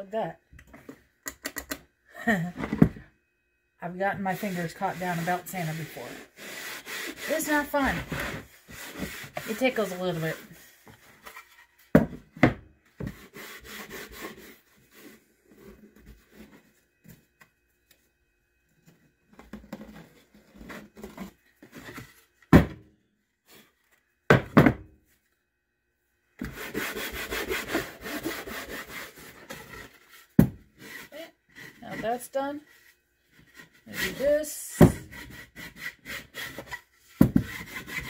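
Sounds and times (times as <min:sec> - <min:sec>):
sandpaper on wood: 0:04.3 - 0:10.6, 0:13.2 - 0:15.1, 0:26.5 - 0:29.4, 0:37.4 - 0:38.0.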